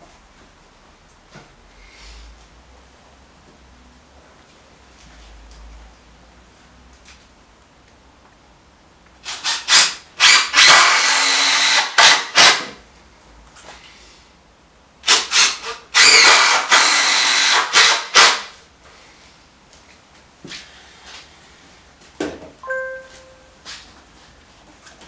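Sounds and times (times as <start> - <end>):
cordless drill driving screws: 9.2 - 12.7, 15.0 - 18.5.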